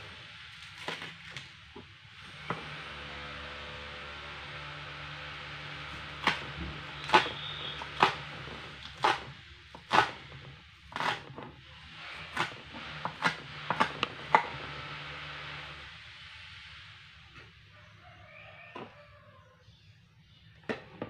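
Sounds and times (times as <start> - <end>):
knife chopping on cutting board: 6.1 - 10.2, 11.0 - 11.3, 12.3 - 14.6.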